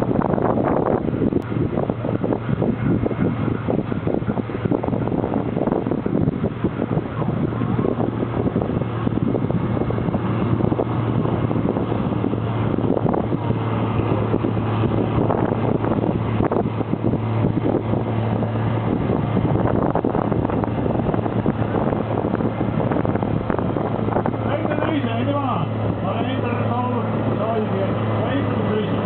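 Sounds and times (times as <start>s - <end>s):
tractor diesel engine under load: 0.0s - 29.0s.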